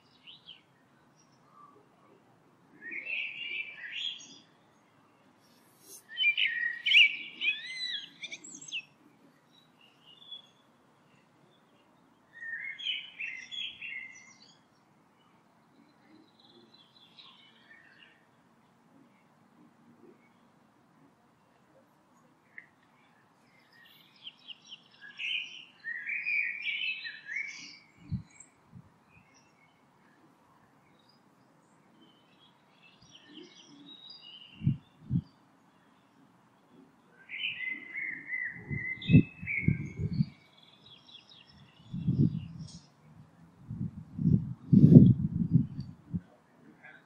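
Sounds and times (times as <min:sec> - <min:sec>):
songbirds chirping: 0:00.0 - 0:47.0.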